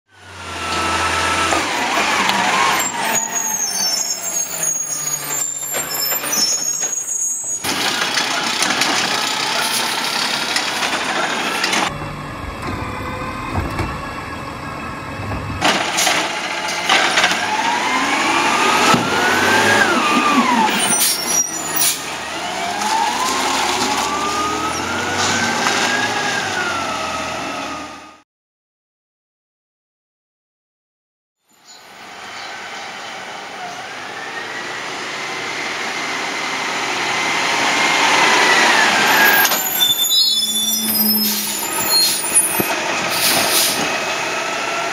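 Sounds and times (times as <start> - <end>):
garbage truck diesel engine running: 0.2 - 25.4.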